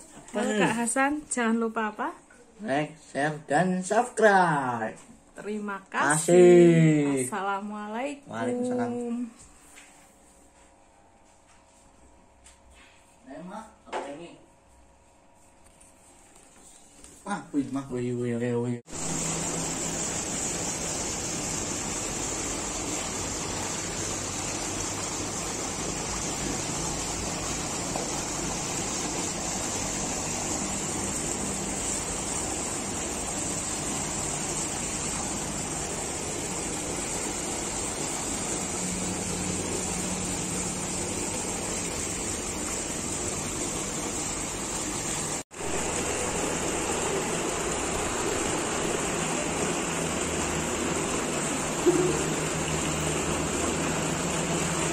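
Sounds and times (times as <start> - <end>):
water rushing: 18.9 - 54.9.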